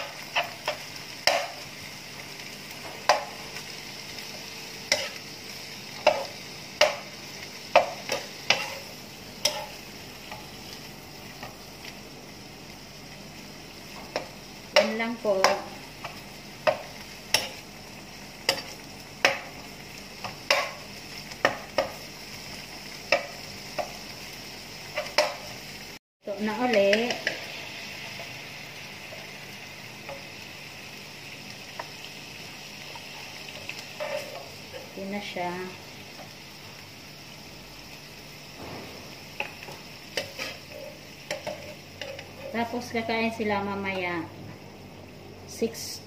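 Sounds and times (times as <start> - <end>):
food sizzling: 0.0 - 46.0
metal utensil scraping pan: 4.9 - 5.2, 7.7 - 9.8, 33.7 - 34.9, 39.4 - 42.8.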